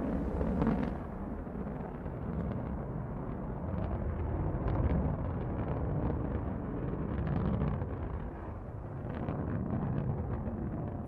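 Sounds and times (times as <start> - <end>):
rocket engine rumble with crackling: 0.0 - 11.0.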